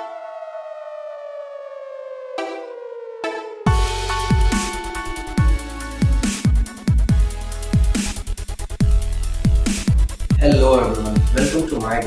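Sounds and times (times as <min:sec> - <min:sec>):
falling synth tone: 0:00.0 - 0:08.2
deep kick drum beat: 0:03.7 - 0:08.0, 0:08.8 - 0:12.0.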